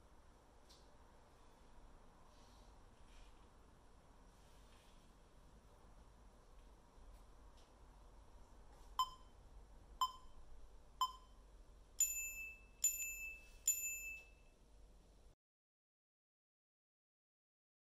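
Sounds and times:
countdown timer beeps: 0:09.0 - 0:09.3, 0:10.0 - 0:10.4, 0:11.0 - 0:11.4.

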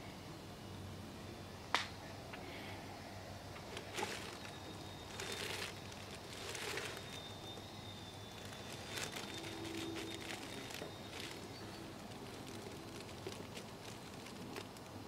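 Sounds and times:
plastic sheet rustling: 0:03.6 - 0:07.7, 0:08.3 - 0:15.0.

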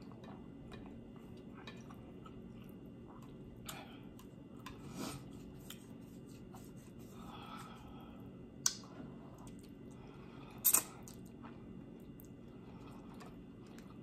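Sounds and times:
chewing and mouth sounds: 0:08.6 - 0:09.9.

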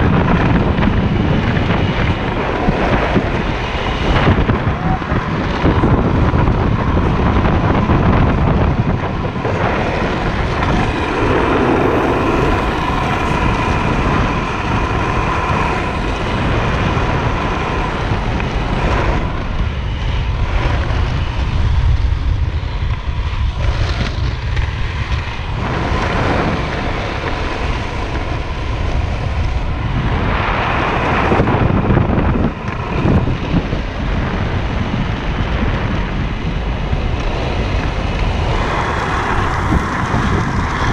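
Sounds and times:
wheels rolling on asphalt: 0:00.0 - 0:40.9
wind rush on microphone: 0:00.0 - 0:40.9.

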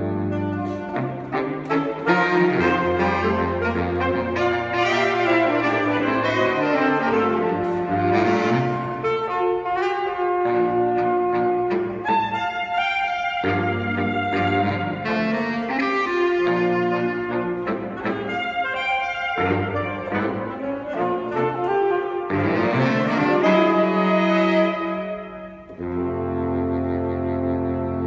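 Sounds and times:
saxophone quartet playing chords: 0:00.0 - 0:28.0.

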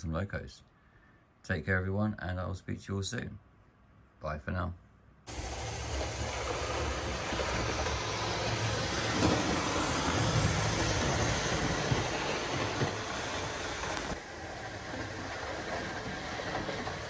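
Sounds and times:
model train motor hum: 0:05.3 - 0:17.0
wheels rumbling on rails: 0:05.3 - 0:17.0.

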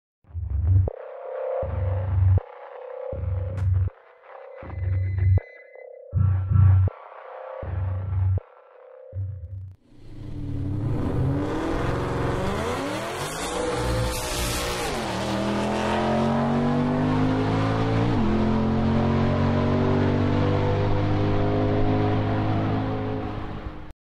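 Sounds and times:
car engine at full throttle: 0:09.9 - 0:23.9.

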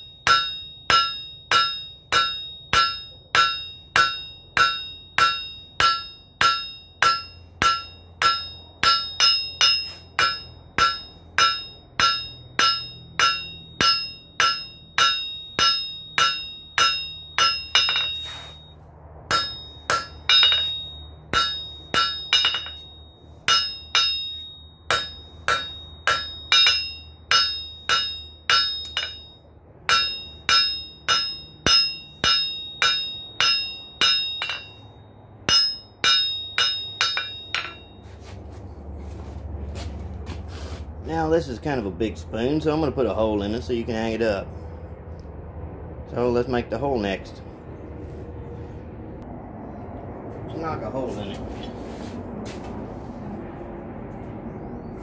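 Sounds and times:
hammer striking metal on anvil: 0:00.0 - 0:38.1.

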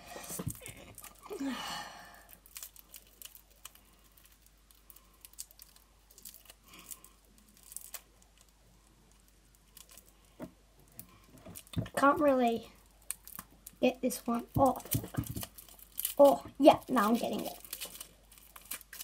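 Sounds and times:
plastic wrapper crinkling: 0:00.0 - 0:19.0.

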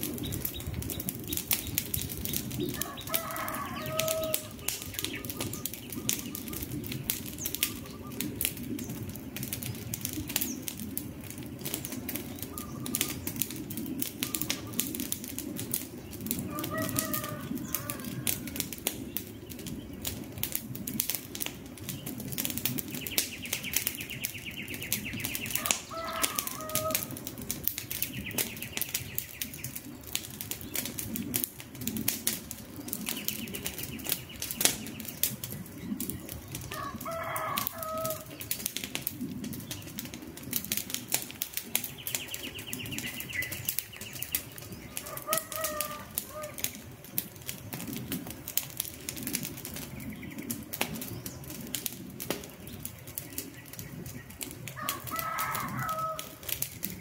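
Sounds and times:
campfire crackling and popping: 0:00.0 - 0:57.0
bird calling: 0:00.1 - 0:09.0, 0:12.2 - 0:14.9, 0:22.9 - 0:27.2, 0:41.8 - 0:46.8.

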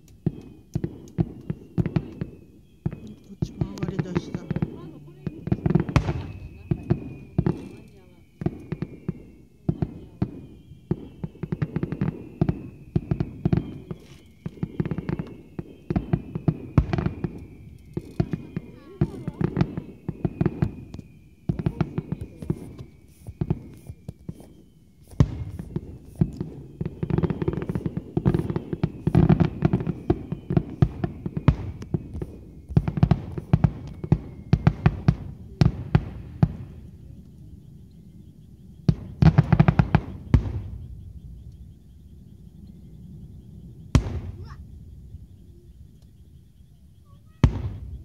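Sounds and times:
fireworks bursting with sharp bangs: 0:00.0 - 0:48.0.

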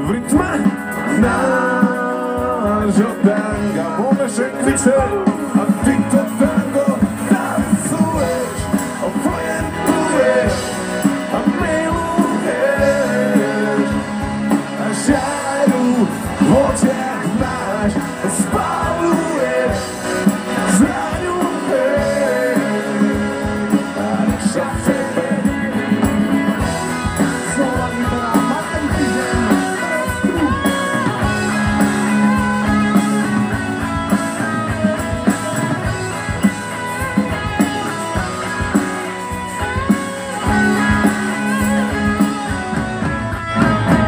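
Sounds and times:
person singing: 0:00.0 - 0:32.5
live rock band playing: 0:00.0 - 0:44.0.

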